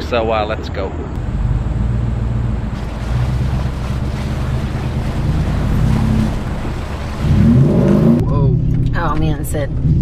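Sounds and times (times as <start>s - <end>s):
truck engine low hum: 1.2s - 9.1s
wind buffeting microphone: 1.2s - 9.8s.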